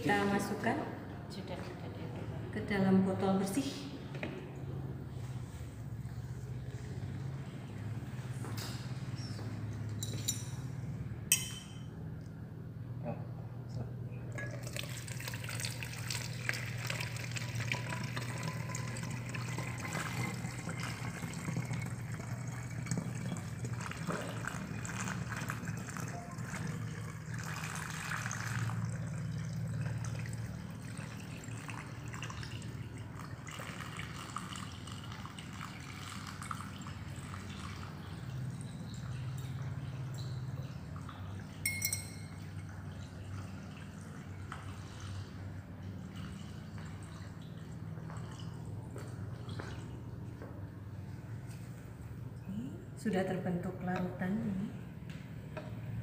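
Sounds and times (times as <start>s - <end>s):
low steady hum: 0.0s - 56.0s
liquid trickling into bottle: 14.3s - 45.2s.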